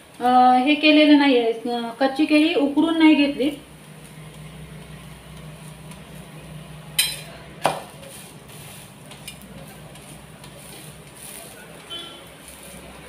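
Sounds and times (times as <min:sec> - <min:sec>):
steel spatula clinking on griddle: 0:06.9 - 0:07.4, 0:09.1 - 0:12.7.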